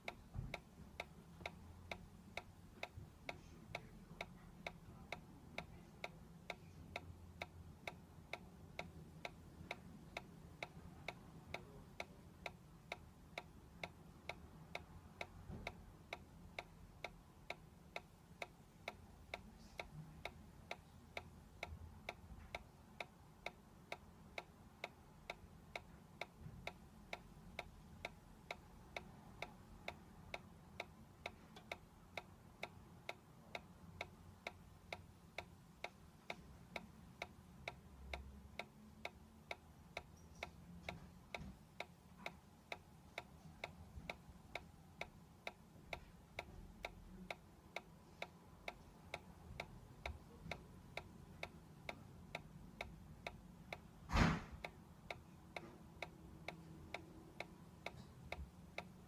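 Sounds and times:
toy mechanism ticking: 54.6 - 59.0.

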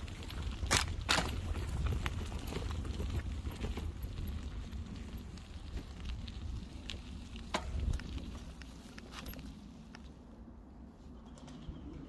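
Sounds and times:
wind rumble on microphone: 0.0 - 10.0
tyres crackling over twigs: 0.0 - 10.1.

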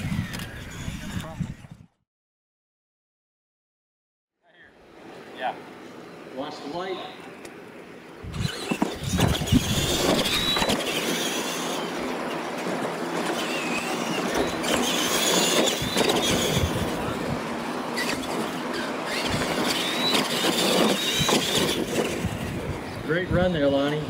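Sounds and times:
rc truck motors whining: 0.0 - 2.0, 7.0 - 24.0
tyre and drivetrain rush: 8.2 - 24.0.

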